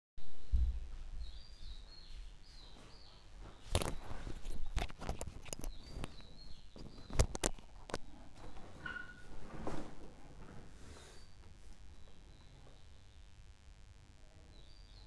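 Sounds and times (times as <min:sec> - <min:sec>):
bird chirps: 0:01.2 - 0:07.4, 0:12.0 - 0:13.3, 0:14.4 - 0:15.0.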